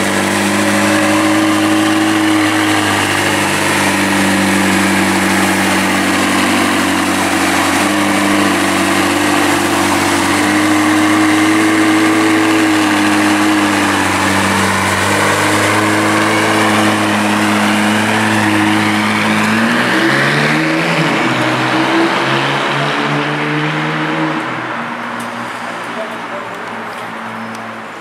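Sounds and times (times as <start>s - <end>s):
car engine idling: 0.0s - 22.5s.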